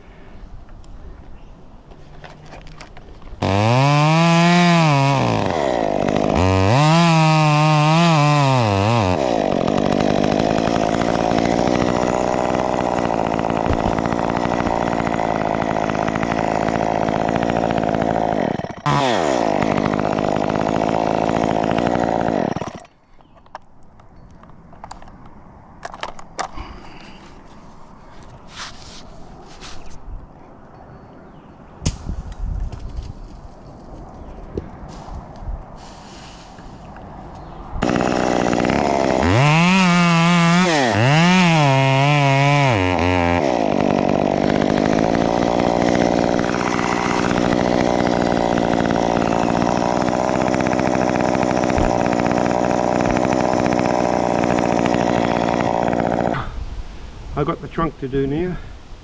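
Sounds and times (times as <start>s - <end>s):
chainsaw revving and cutting: 3.4s - 22.9s, 37.8s - 56.6s.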